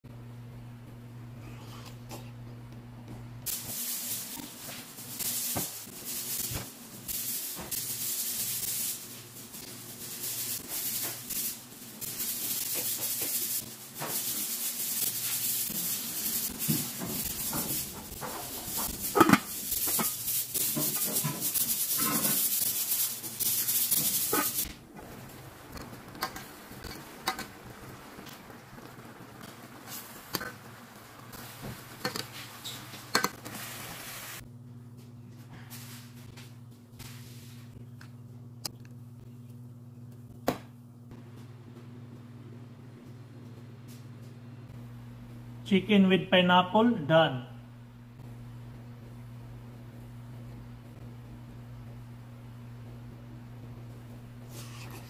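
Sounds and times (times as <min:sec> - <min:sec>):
loud cooking hiss: 0:03.4 - 0:34.4
kitchen clatters: 0:16.2 - 0:27.6, 0:31.7 - 0:33.5.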